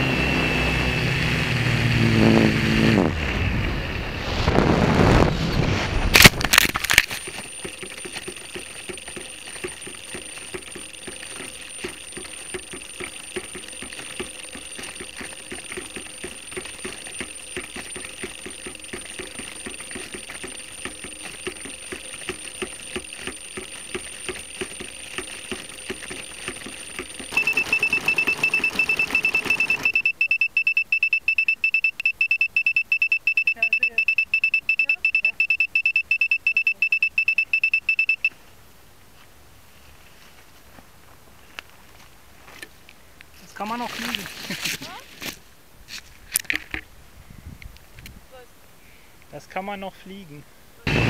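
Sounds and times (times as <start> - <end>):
loud rapid piercing beeps: 6.2 - 38.3
faint high tone with ticking: 7.1 - 38.4.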